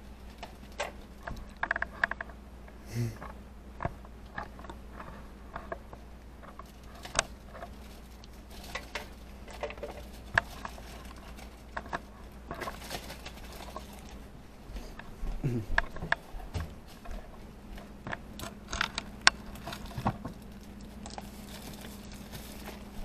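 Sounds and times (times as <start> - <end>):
low steady hum: 0.0 - 23.0
scraping rustle: 3.2 - 15.2, 15.9 - 23.0.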